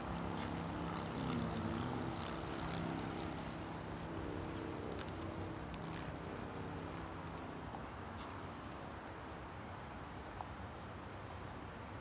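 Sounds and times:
engine droning: 0:00.0 - 0:10.0.

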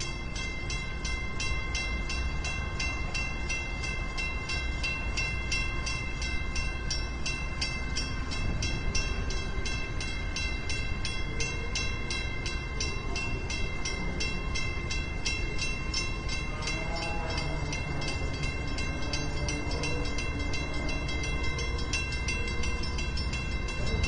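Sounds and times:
warning bell ringing rapidly: 0:00.0 - 0:24.0.

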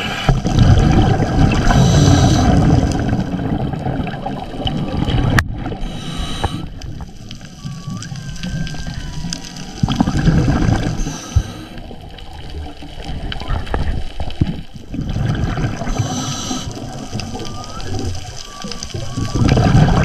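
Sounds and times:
low gurgling rumble: 0:00.0 - 0:20.0
low underwater rumble: 0:00.3 - 0:20.0
whale song tones: 0:07.2 - 0:11.7, 0:15.9 - 0:20.0.

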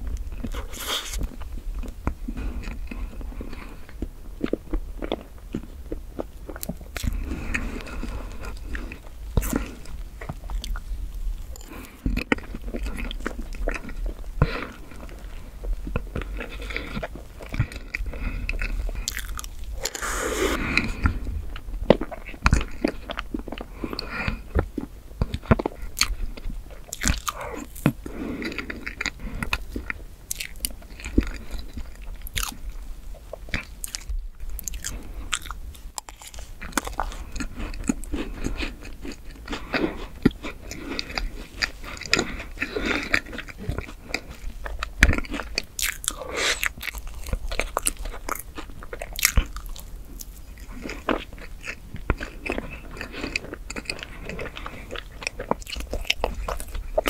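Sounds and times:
wet sticky chewing: 0:00.2 - 0:57.0
biting cake: 0:00.3 - 0:10.8, 0:11.4 - 0:21.2, 0:21.9 - 0:32.7, 0:33.4 - 0:57.0
cookie pieces crunching: 0:11.4 - 0:21.1, 0:26.8 - 0:32.6, 0:33.5 - 0:57.0.

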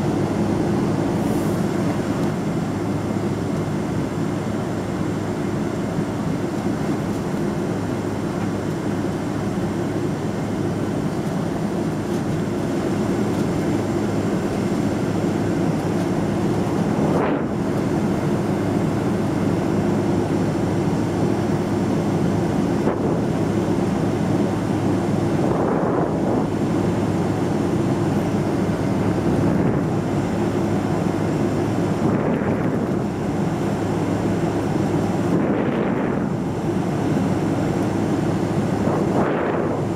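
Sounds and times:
jet engine rumble in cabin: 0:00.0 - 0:39.9.

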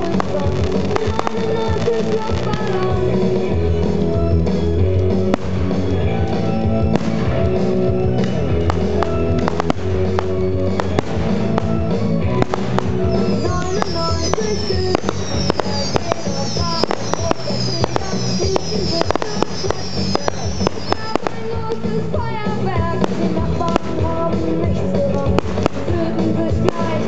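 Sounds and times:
firework shells bursting: 0:00.0 - 0:03.3, 0:04.5 - 0:22.0
music over sound system: 0:00.0 - 0:27.0.

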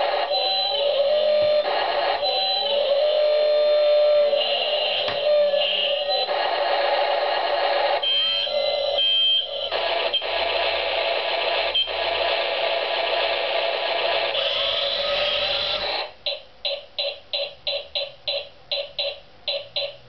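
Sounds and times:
toy electronic sound effects: 0:00.0 - 0:06.4, 0:07.9 - 0:10.8, 0:11.4 - 0:12.3, 0:14.2 - 0:20.0.

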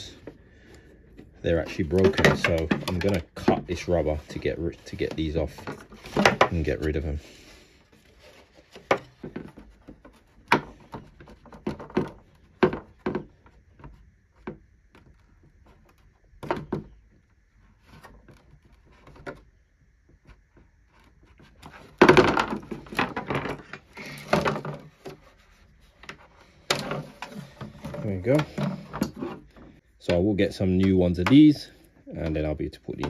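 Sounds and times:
plastic parts rattling: 0:01.1 - 0:07.2, 0:07.9 - 0:14.0, 0:21.4 - 0:25.3.

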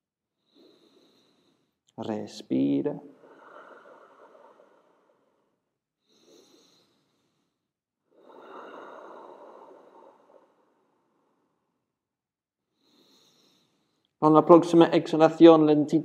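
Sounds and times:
person breathing: 0:00.3 - 0:02.0, 0:03.1 - 0:14.2.

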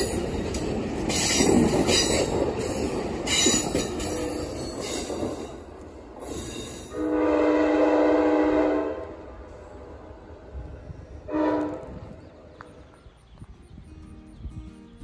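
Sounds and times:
low train rumble: 0:00.0 - 0:15.0
train air horn blasts: 0:06.9 - 0:09.7, 0:11.2 - 0:12.1.

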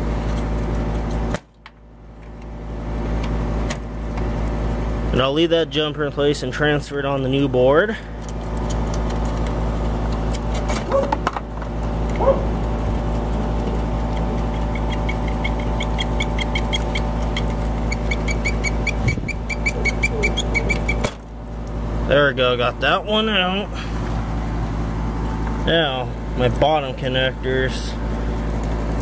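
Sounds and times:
steady mechanical hum: 0:00.0 - 0:29.0
rapid high chirps: 0:14.6 - 0:21.1.

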